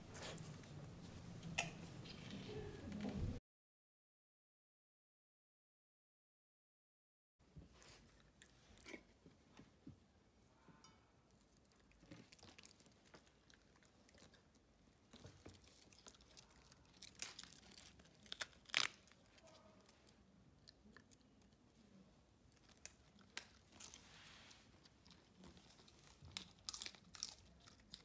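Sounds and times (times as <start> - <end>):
dog chewing cabbage leaf: 15.1 - 20.0, 22.6 - 28.0.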